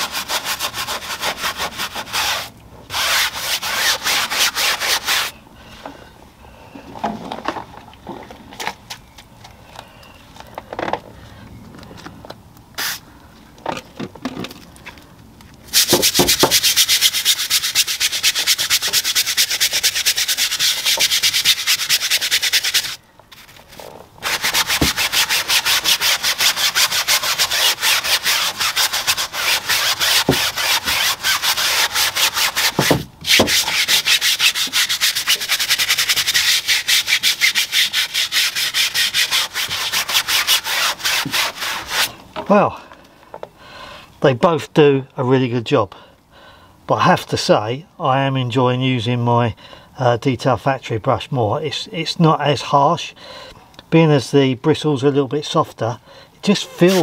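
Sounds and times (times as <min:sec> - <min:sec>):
brush scrubbing a tyre: 0:00.0 - 0:05.4, 0:15.7 - 0:42.2, 0:56.7 - 0:57.0.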